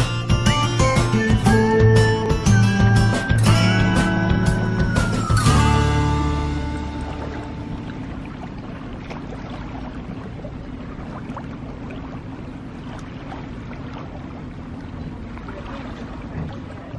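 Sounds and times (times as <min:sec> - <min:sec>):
low steady rumble: 0:00.0 - 0:16.9
water lapping against boats: 0:00.0 - 0:16.9
small splashes and ticks: 0:07.0 - 0:16.9.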